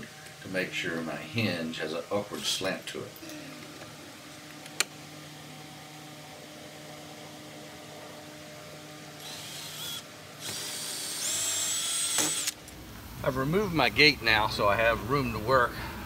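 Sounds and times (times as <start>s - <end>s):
cordless drill whining: 9.2s - 12.6s.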